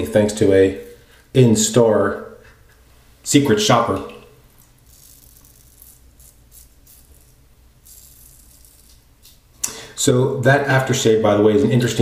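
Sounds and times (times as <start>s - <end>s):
razor scraping stubble: 4.5s - 9.4s.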